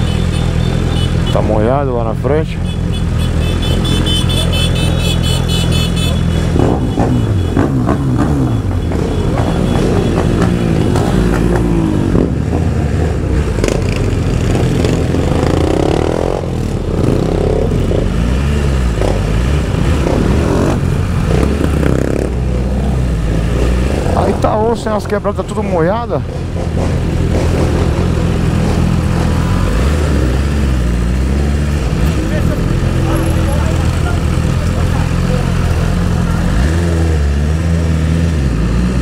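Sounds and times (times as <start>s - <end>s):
motorcycle engine revving: 0.0s - 39.0s.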